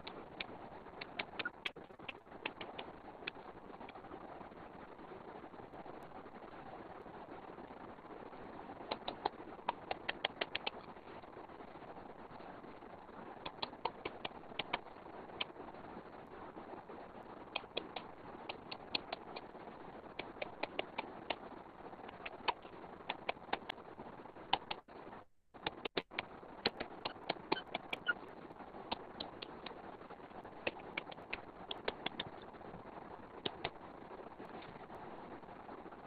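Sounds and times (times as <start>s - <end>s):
stylus tapping on screen: 0.0s - 3.4s, 17.6s - 19.5s, 25.6s - 28.2s, 28.9s - 29.8s, 30.4s - 32.4s, 33.4s - 33.8s
steady background hiss: 0.0s - 36.0s.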